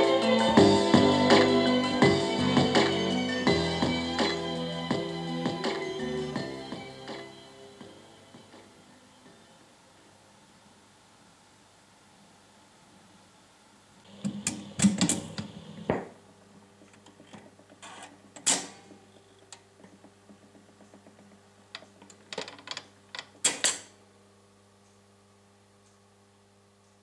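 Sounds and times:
faint steady hum: 0:00.0 - 0:27.0
record player tonearm clicks: 0:14.1 - 0:16.1, 0:16.9 - 0:24.0.

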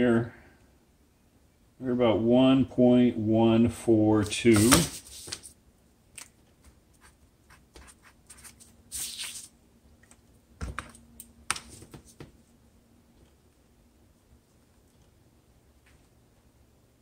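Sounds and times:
paper sheet rustling: 0:04.2 - 0:05.6, 0:07.0 - 0:09.5.

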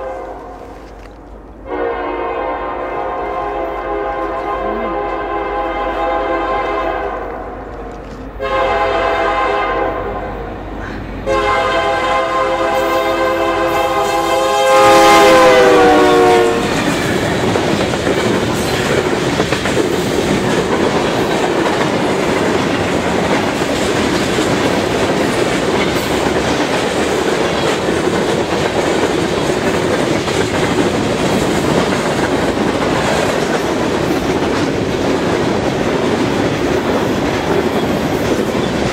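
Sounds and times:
locomotive air horn blasts: 0:00.0 - 0:00.6, 0:01.6 - 0:07.4, 0:08.4 - 0:10.4, 0:11.2 - 0:16.8
wheels clacking over rail joints: 0:16.2 - 0:38.9.

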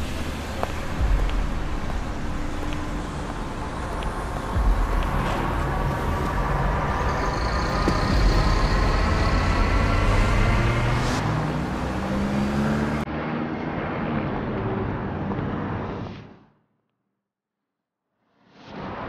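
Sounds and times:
road traffic rumble: 0:00.0 - 0:16.3
faint engine tones rising: 0:02.0 - 0:14.9.

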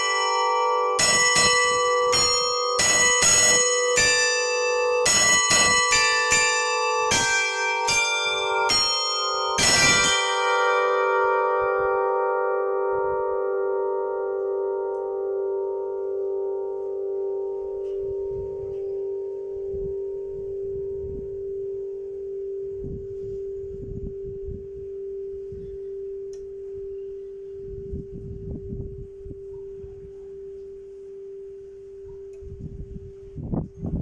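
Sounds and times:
church bell ringing: 0:00.0 - 0:21.6.

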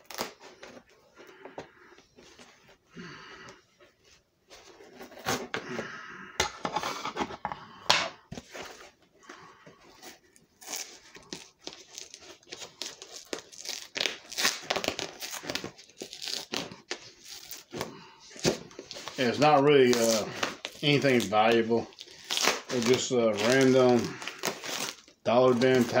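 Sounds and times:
packaging crinkling and tearing: 0:00.0 - 0:00.8, 0:10.6 - 0:26.0.

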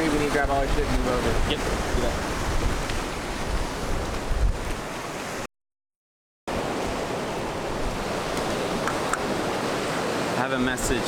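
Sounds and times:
wind buffeting microphone: 0:00.0 - 0:05.1, 0:06.5 - 0:10.3
ocean surf washing on beach: 0:00.0 - 0:05.5, 0:06.5 - 0:11.0.

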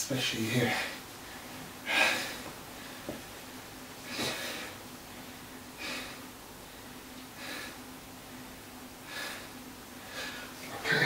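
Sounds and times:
man breathing hard: 0:01.8 - 0:03.2, 0:05.7 - 0:06.3, 0:07.3 - 0:07.8, 0:09.0 - 0:10.6.

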